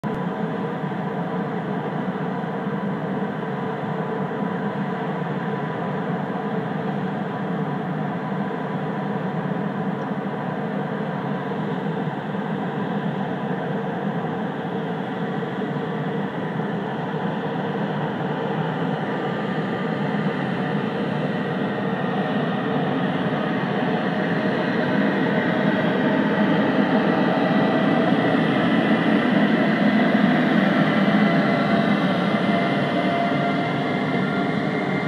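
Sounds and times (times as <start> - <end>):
faint rising whine: 14.5 - 35.0
electric locomotive pulling freight train: 16.6 - 35.0.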